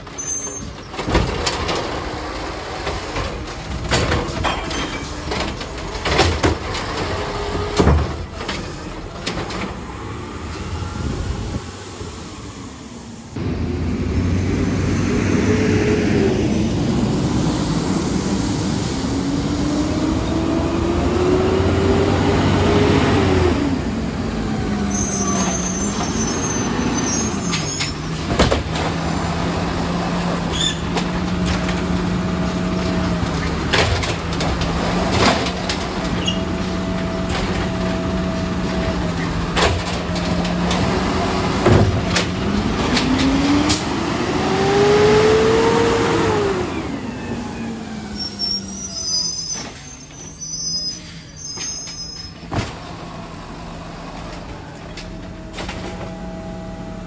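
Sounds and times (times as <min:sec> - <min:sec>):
knocks and clanks from truck: 0:00.0 - 0:09.9, 0:27.5 - 0:29.4, 0:30.4 - 0:44.0, 0:51.6 - 0:53.0
garbage truck engine revving: 0:00.7 - 0:50.2.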